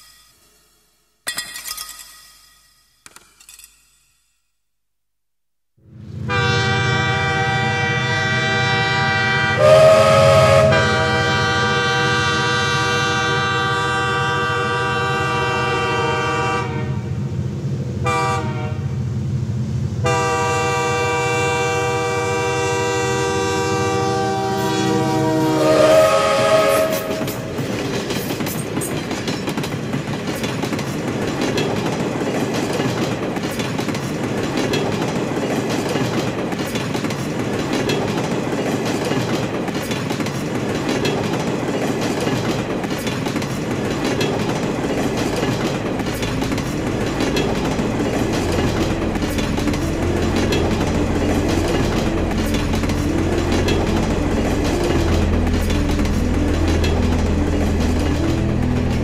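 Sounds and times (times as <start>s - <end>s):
train rumble and clatter: 5.9s - 59.0s
train horn: 6.2s - 17.2s, 18.0s - 18.9s, 20.0s - 27.6s.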